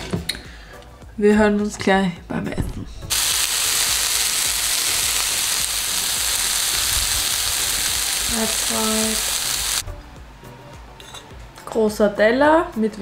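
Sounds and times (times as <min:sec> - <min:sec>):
food sizzling in a pan: 0:03.1 - 0:09.8.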